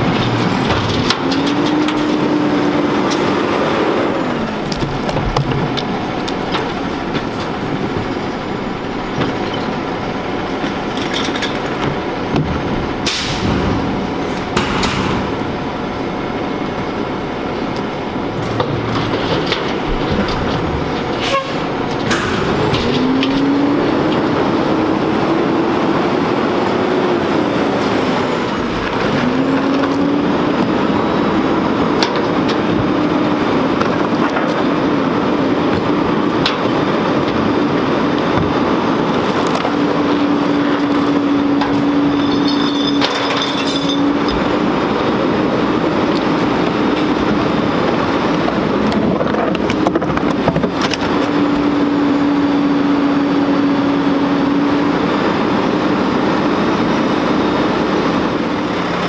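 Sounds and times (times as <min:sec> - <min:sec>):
garbage truck diesel engine: 0:00.0 - 0:59.0
carts knocking against metal hopper: 0:10.5 - 0:15.6, 0:18.4 - 0:23.3.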